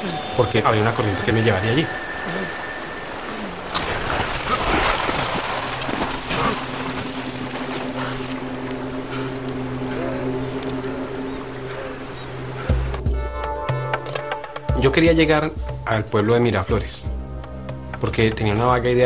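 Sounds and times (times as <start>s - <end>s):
low steady music drone: 0.0s - 4.5s, 5.9s - 19.0s
water splashing: 0.0s - 13.2s.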